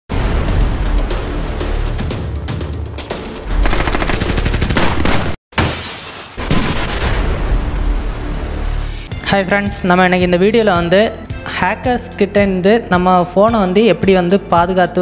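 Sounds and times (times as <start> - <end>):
rapid gunfire: 3.6 - 5.4, 6.4 - 7.2
glass shattering: 5.6 - 6.6.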